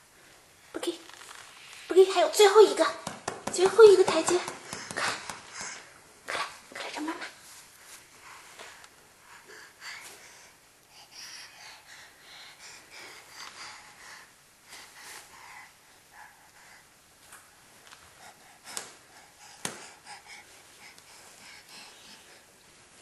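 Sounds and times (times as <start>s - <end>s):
sharp taps: 3.0s - 5.8s
baby breathing and sniffing: 3.8s - 6.5s, 7.9s - 16.9s, 18.1s - 22.6s.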